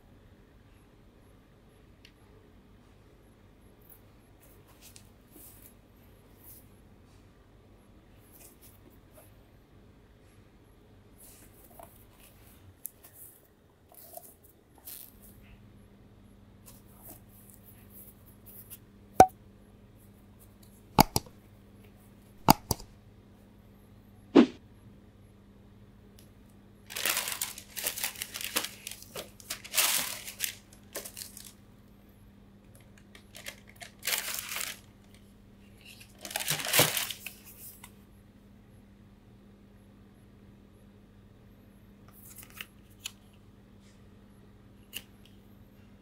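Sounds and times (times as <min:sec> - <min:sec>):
tissue paper crinkling: 0:26.9 - 0:31.6, 0:33.1 - 0:35.2, 0:35.9 - 0:37.7.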